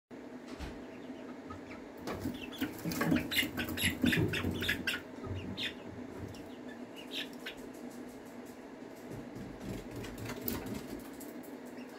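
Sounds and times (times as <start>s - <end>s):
chicks cheeping: 0.6s - 8.4s, 11.6s - 11.9s
wings flapping: 2.0s - 11.9s.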